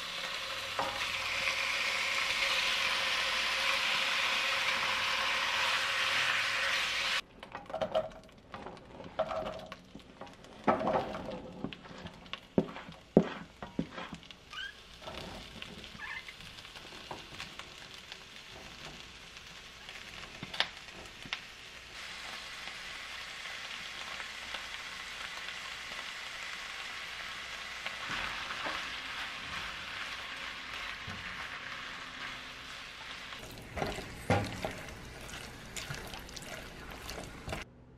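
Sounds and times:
meat sizzling in a frying pan: 0.0 - 7.2, 12.3 - 37.7
spatula scraping and knocking pan: 7.5 - 14.3, 33.4 - 37.6.

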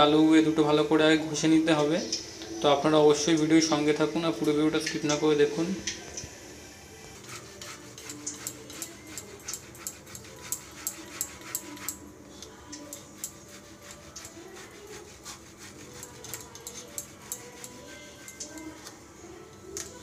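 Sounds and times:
potato grating on metal grater: 7.2 - 12.0, 12.9 - 18.9.

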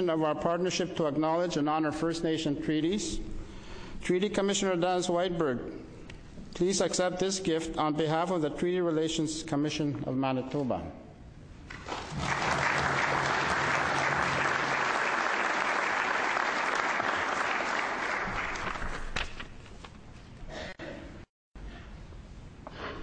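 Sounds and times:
audience applauding: 11.7 - 19.0.

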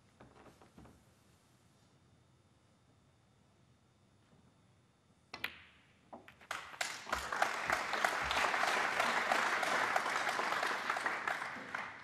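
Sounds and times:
audience applause: 6.5 - 12.0.

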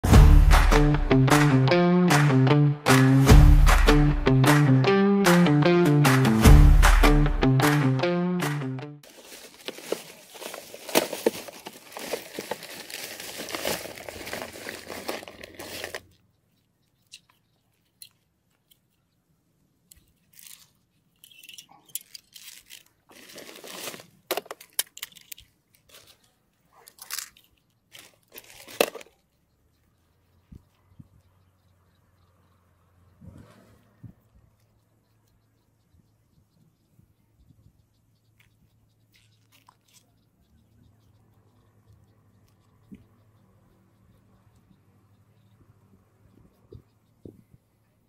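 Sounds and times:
plastic bag crinkling: 9.0 - 16.2, 20.2 - 29.2
fishing tackle rustles and clicks: 9.0 - 16.3, 19.9 - 29.4, 39.1 - 40.1.

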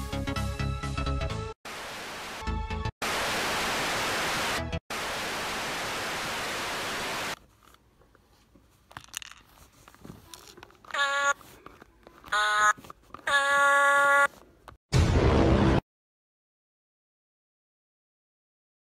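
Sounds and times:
television static hiss: 3.0 - 7.4.

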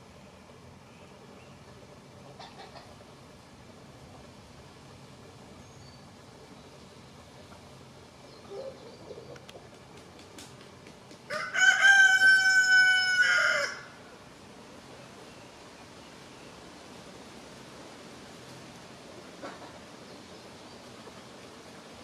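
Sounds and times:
hens clucking: 2.2 - 3.1
rooster crowing: 11.3 - 14.1.

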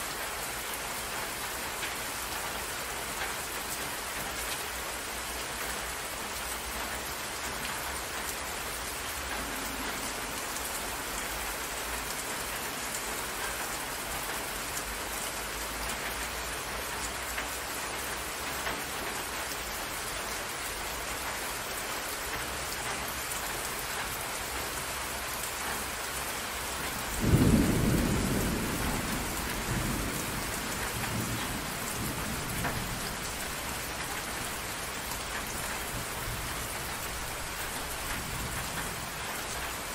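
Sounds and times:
steady rain: 0.0 - 39.9
thunder rumbling: 27.0 - 33.6.

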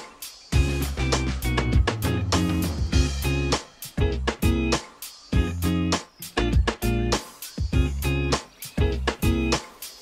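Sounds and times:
plucked guitar music with beat: 0.0 - 10.0
strong bass: 0.6 - 4.7, 5.4 - 7.2, 7.8 - 9.4.

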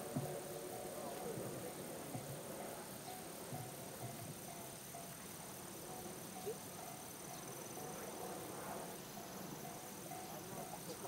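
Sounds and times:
insects trilling: 0.0 - 11.0
crossing warning bell ringing: 5.8 - 8.5, 9.1 - 11.0.

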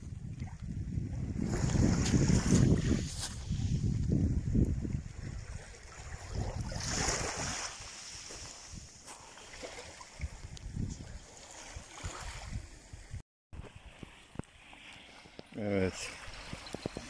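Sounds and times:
wind buffeting microphone: 0.0 - 7.7, 10.1 - 14.5
small waves washing on shore: 0.3 - 17.0.

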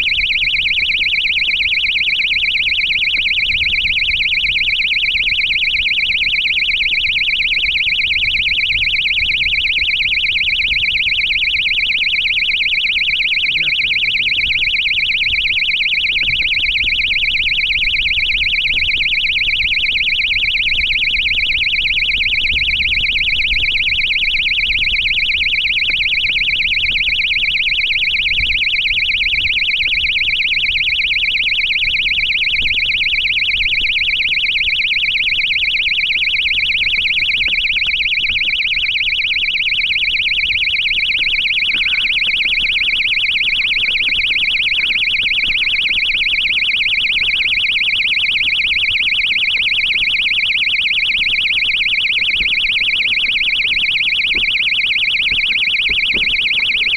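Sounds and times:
high-pitched pulsing electronic beeper: 13.4 - 14.7.

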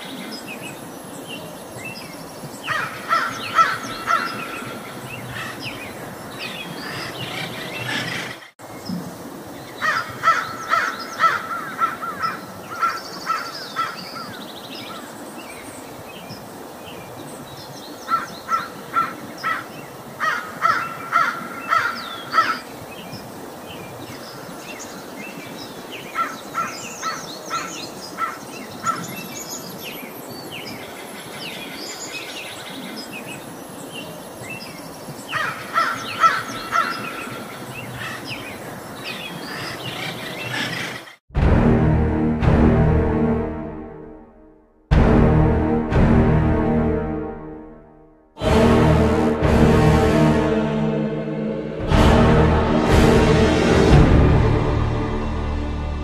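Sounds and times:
outdoor background hiss: 0.0 - 41.2
crows cawing: 2.7 - 5.6, 9.8 - 14.4, 18.1 - 22.7, 26.2 - 29.0, 35.3 - 38.3.

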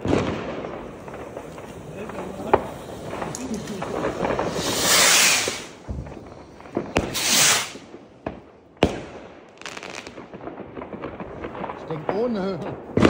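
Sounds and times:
firework rocket whoosh: 0.0 - 8.1
firework bangs: 0.0 - 13.0
firework crackle: 0.0 - 13.0.

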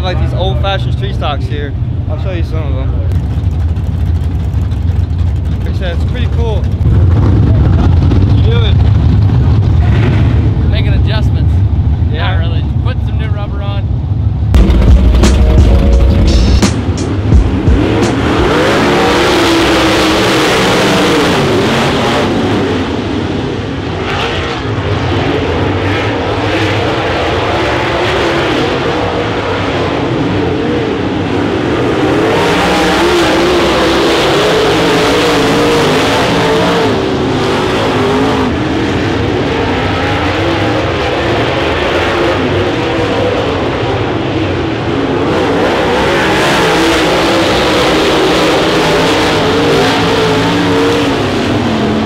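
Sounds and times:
race car engines: 0.0 - 52.0
sharp thumps: 14.5 - 18.6.

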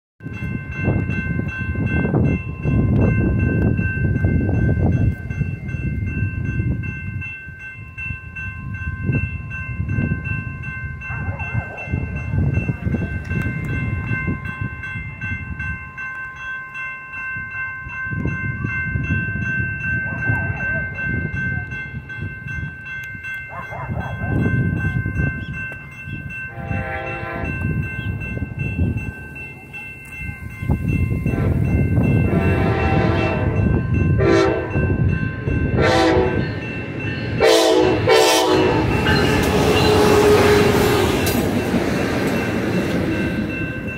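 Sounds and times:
railroad crossing bell ringing: 0.2 - 43.9.

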